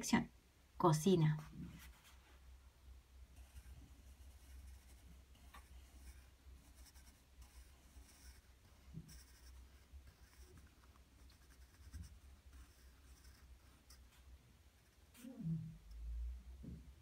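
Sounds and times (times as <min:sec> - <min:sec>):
pencil scratching on paper: 0:01.4 - 0:02.4, 0:03.4 - 0:15.4.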